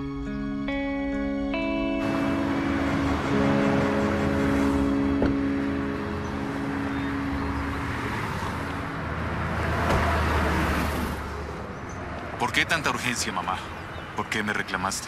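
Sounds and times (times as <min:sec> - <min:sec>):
held music notes: 0:00.0 - 0:08.1
city street traffic: 0:00.1 - 0:15.0
vehicle passing: 0:01.9 - 0:14.4
car door shutting: 0:04.6 - 0:05.5.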